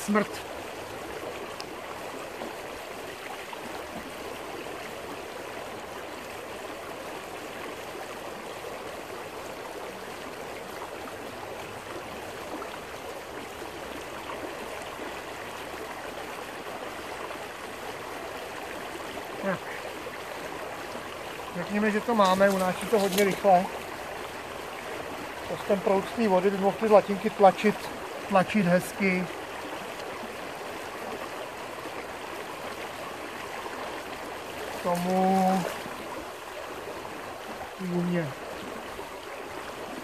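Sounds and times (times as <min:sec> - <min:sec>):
water rushing over stones: 0:00.0 - 0:40.0
water splash: 0:34.5 - 0:36.0.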